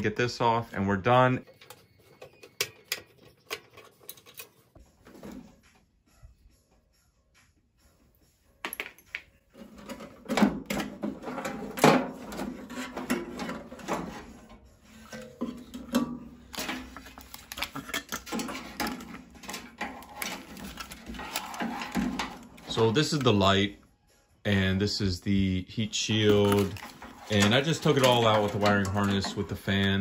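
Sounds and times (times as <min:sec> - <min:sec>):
metal parts knocking and rattling: 0:01.4 - 0:05.4, 0:08.6 - 0:23.4, 0:26.1 - 0:30.0.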